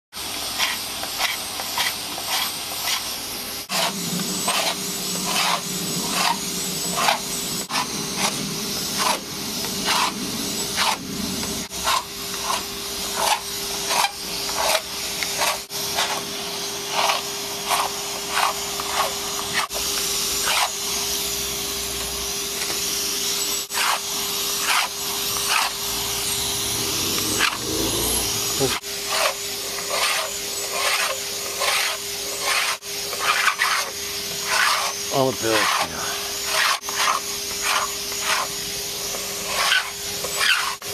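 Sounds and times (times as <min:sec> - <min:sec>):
vacuum cleaner running: 0:00.2 - 0:40.9
blade scraping paint off hull: 0:03.7 - 0:16.3, 0:23.7 - 0:38.5.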